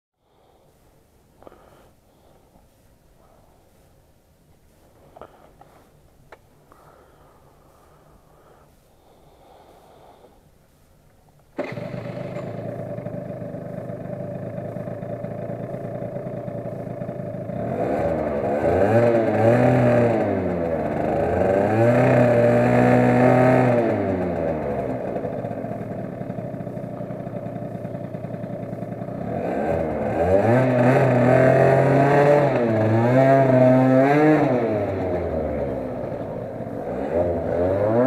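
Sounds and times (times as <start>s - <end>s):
scooter engine starting and idling: 11.4s - 38.0s
scooter engine revving: 11.6s - 38.0s.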